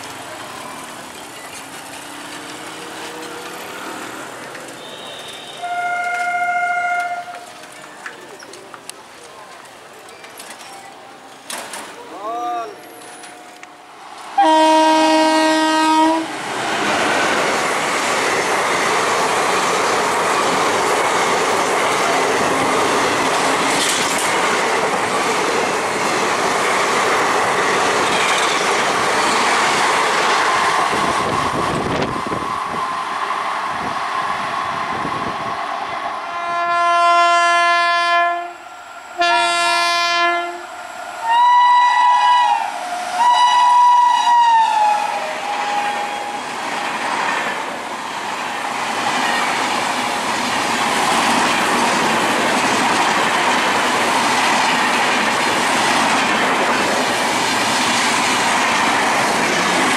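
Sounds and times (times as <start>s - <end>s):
passenger train running past: 0.0s - 59.9s
locomotive horn blasts: 4.8s - 7.5s, 14.4s - 16.3s, 36.3s - 38.6s, 39.2s - 40.7s, 41.3s - 46.0s.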